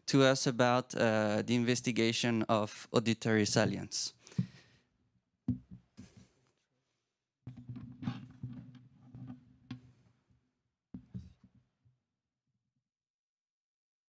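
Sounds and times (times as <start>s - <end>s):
equipment handling knocks and clicks: 5.5s - 6.3s.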